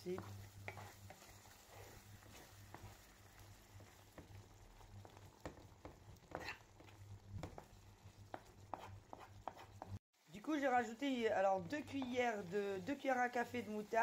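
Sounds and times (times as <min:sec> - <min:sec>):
spatula scraping a frying pan: 0:00.0 - 0:10.0
sauce simmering: 0:00.0 - 0:14.0.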